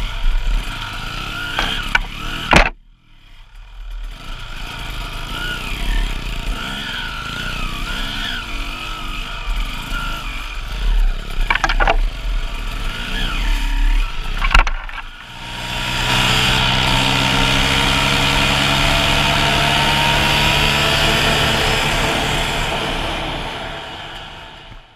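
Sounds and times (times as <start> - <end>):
two-stroke motorbike engine: 0.0 - 24.7
branches knocking against bike: 1.6 - 2.8, 11.4 - 12.1, 14.3 - 15.4.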